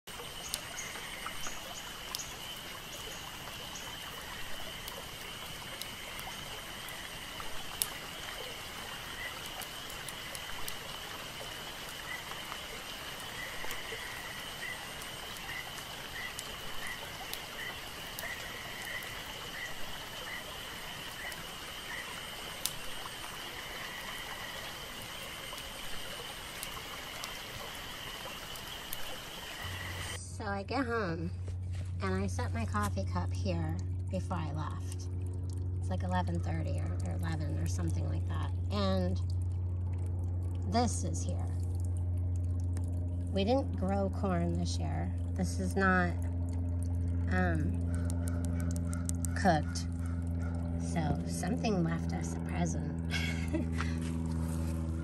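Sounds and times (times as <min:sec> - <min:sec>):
soft rushing water: 0:00.1 - 0:30.2.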